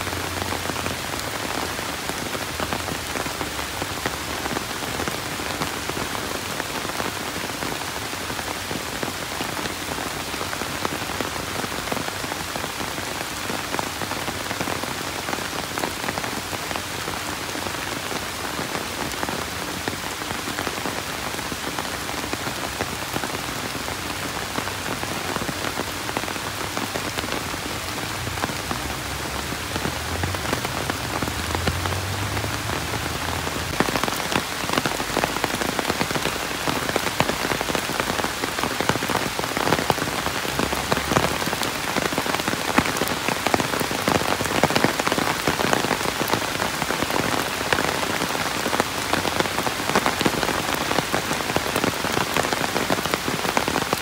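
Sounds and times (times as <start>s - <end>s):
heavy rain falling: 0.0s - 54.0s.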